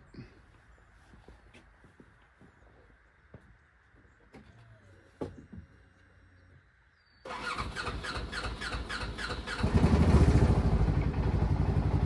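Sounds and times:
engine cranking on starter: 7.3 - 12.0
engine idling: 7.3 - 12.0.

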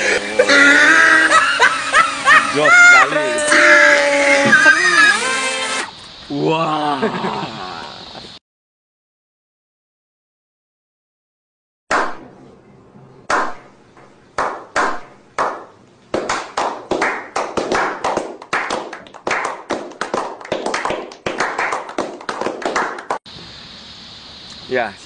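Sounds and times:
people clapping: 14.4 - 23.2.

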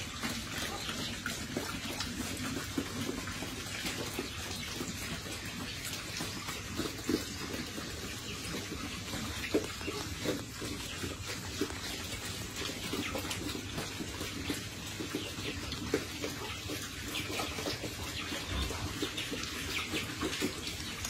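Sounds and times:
pigs slurping wet feed: 0.0 - 21.0.

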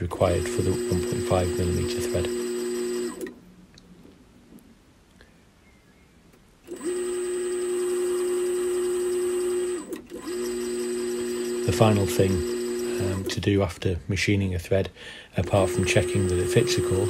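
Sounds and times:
metal lathe humming: 0.0 - 3.3, 6.7 - 13.4, 15.4 - 17.0.

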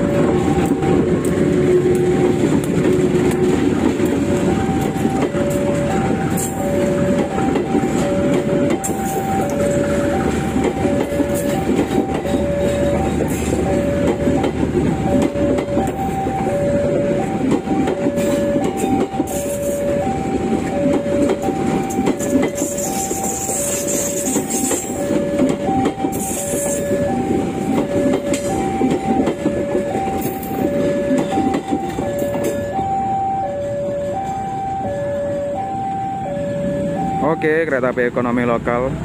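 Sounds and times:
two-note level crossing alarm: 0.0 - 37.8
train wheels clattering over rail joints: 0.2 - 16.3.

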